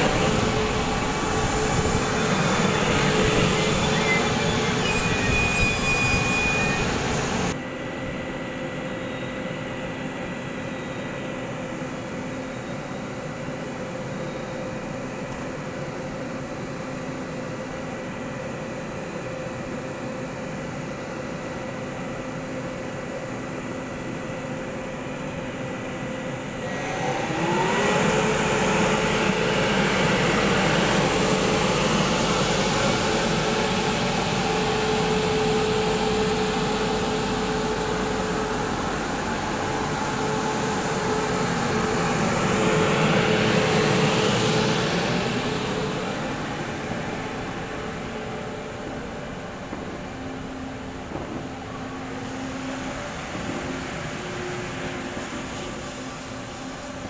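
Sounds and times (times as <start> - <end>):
train electrical hum: 0.0 - 57.0
train motor whine: 0.0 - 57.0.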